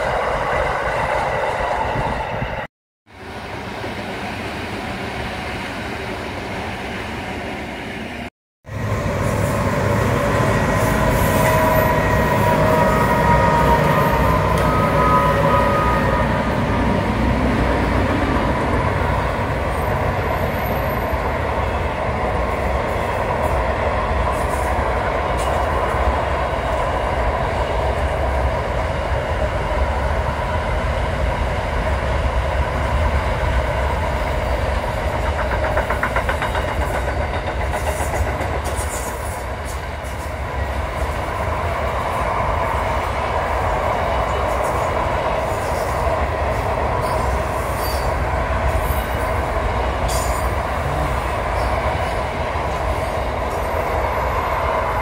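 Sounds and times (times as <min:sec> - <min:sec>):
electric train passing: 0:00.0 - 0:55.0
freight train wagons rumbling: 0:08.7 - 0:55.0
train wheels squealing: 0:09.2 - 0:16.6, 0:47.0 - 0:50.7, 0:53.0 - 0:55.0.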